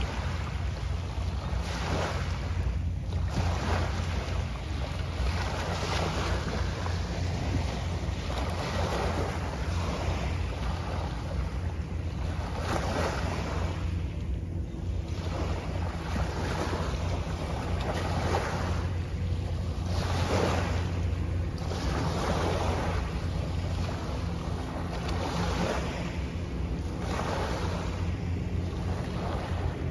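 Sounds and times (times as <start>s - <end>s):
small waves washing on sand: 0.0s - 29.9s.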